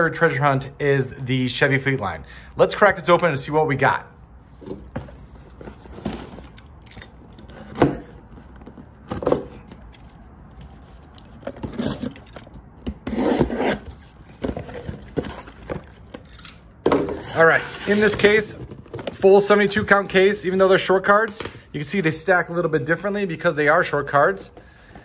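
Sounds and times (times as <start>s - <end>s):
cardboard rubbing and scraping: 10.8s - 16.1s, 17.1s - 19.0s.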